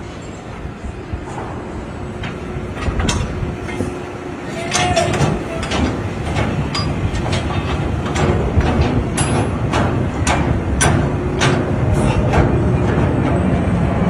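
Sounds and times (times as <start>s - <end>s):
metal rod clanking: 4.6s - 12.4s.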